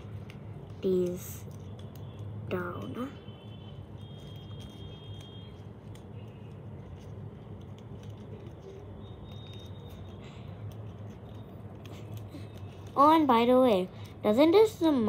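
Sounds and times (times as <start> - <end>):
paper rustling and crackling: 4.0 - 13.5.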